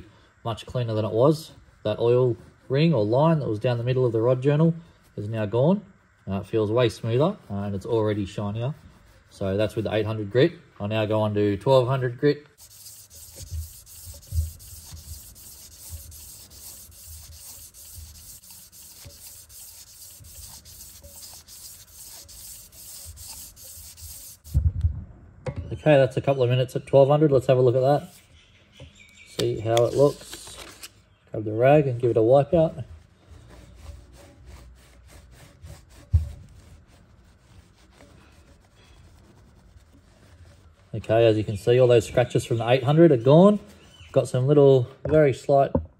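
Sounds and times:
cloth rag rubbing on metal: 6.5 - 24.6, 29.8 - 30.3, 32.0 - 44.7
sandpaper rasping on metal: 7.0 - 10.2, 12.6 - 24.6, 29.7 - 30.3, 32.2 - 44.4
low thump: 24.5 - 25.7.

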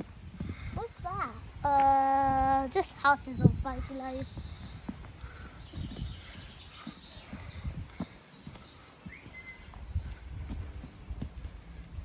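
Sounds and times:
birds chirping: 2.3 - 12.0
footsteps on dirt path: 3.0 - 12.0.

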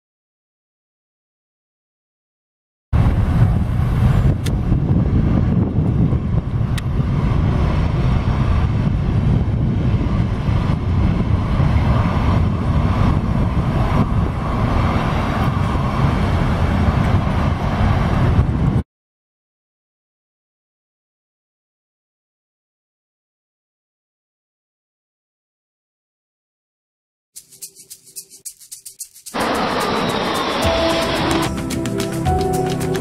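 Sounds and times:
dense low rumble: 3.0 - 18.8
wind buffeting microphone: 3.0 - 18.8.

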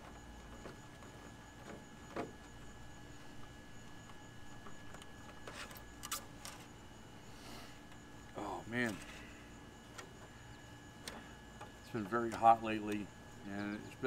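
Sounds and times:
low background hum: 0.0 - 14.0.

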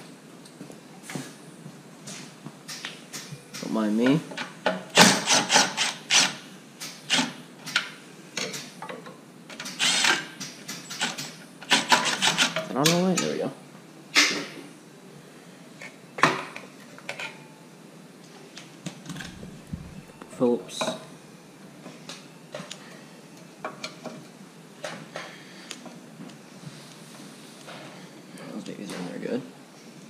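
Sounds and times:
tool scraping metal parts: 9.6 - 13.4.

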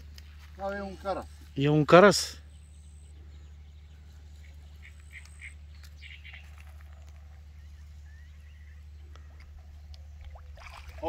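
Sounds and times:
low hum: 2.3 - 11.0.

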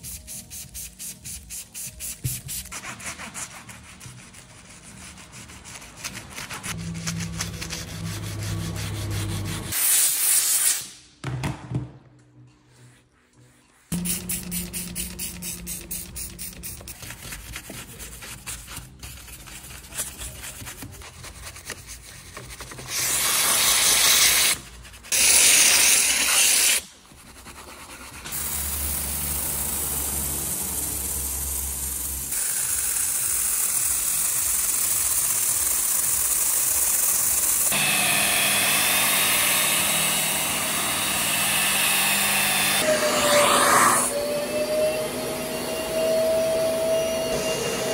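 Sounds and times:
rotary polisher whining: 37.7 - 47.9.

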